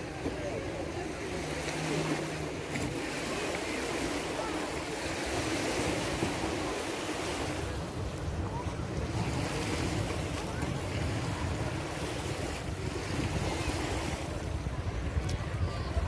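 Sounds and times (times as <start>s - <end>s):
surf washing onto sandy beach: 0.0s - 16.0s
wind gusting on microphone: 5.2s - 16.0s.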